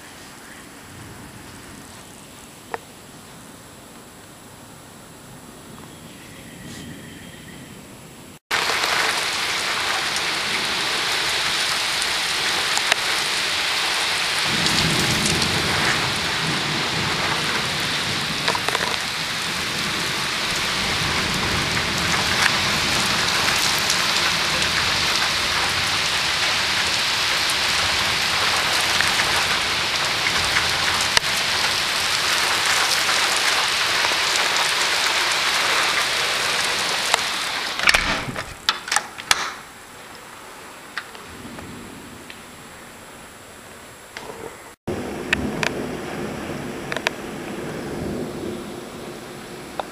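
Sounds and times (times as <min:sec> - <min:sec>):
heavy rain pouring: 0:00.0 - 0:06.6, 0:08.5 - 0:49.9
thunder rumble: 0:00.0 - 0:38.7, 0:39.6 - 0:49.9.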